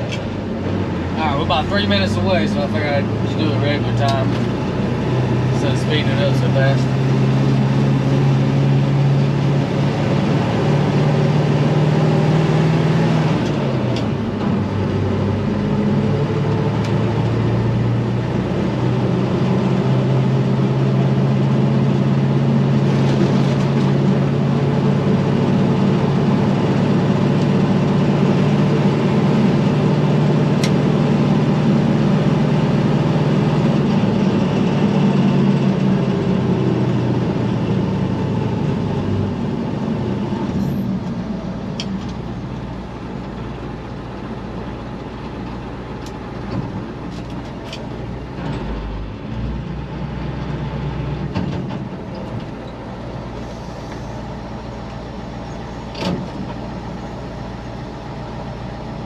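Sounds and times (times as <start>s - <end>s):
diesel truck engine under load: 0.0s - 59.0s.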